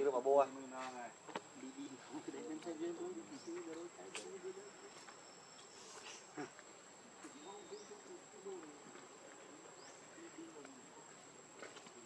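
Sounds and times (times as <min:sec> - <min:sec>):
faint wavering calls: 0:03.1 - 0:08.8.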